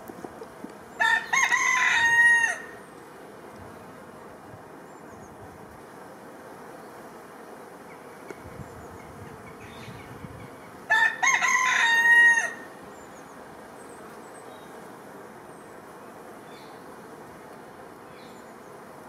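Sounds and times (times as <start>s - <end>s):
background hiss: 0.0s - 19.0s
rooster crowing: 1.0s - 2.8s, 10.9s - 12.7s.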